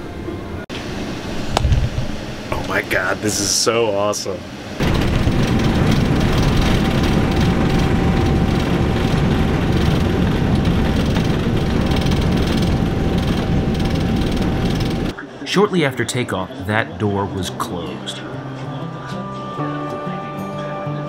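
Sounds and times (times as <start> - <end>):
jet engines rumbling: 0.0 - 18.2.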